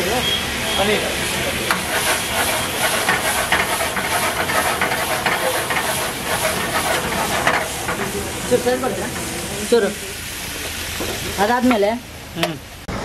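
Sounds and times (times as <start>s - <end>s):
food sizzling in a pan: 0.0s - 12.0s
ladle scraping and clinking on pan: 1.7s - 10.2s.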